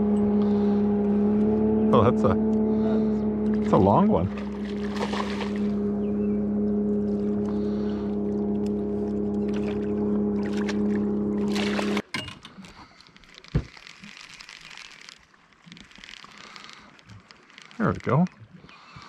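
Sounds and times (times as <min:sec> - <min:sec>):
electric trolling motor humming: 0:00.0 - 0:12.0
fish splashing at surface: 0:04.3 - 0:05.8, 0:09.5 - 0:18.7.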